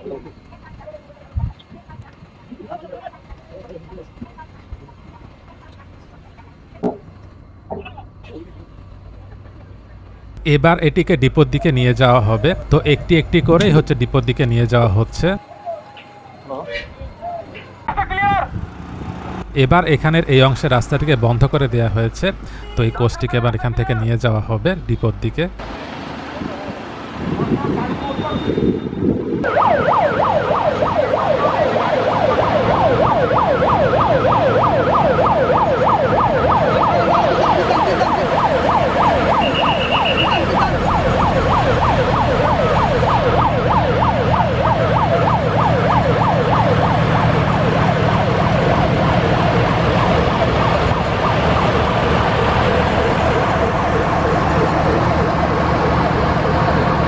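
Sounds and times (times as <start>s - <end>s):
lorry diesel engine running: 0.0s - 57.0s
warbling warning siren: 11.4s - 17.9s, 27.6s - 57.0s.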